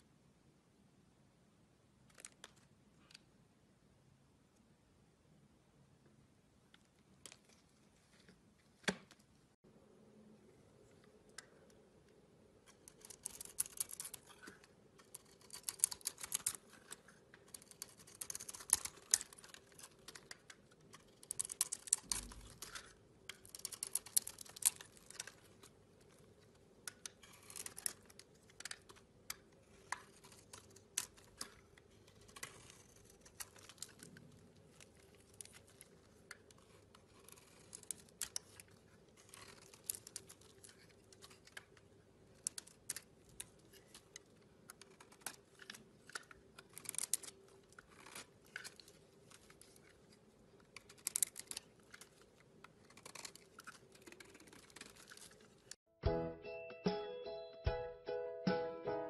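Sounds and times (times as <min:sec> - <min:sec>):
knife shaving soap: 0:12.6 - 0:55.8.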